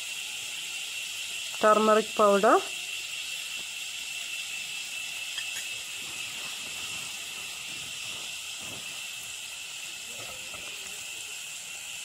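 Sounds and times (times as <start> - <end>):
food sizzling in oil: 0.0 - 12.0
steel spoon stirring: 4.9 - 11.0.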